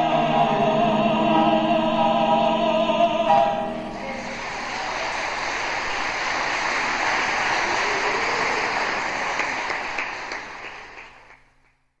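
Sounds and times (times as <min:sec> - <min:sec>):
audience applauding: 0:04.1 - 0:11.8.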